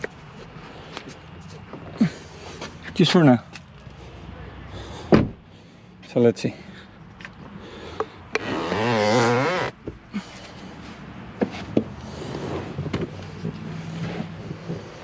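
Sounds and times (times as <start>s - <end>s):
car seat squeaking: 8.3s - 9.8s.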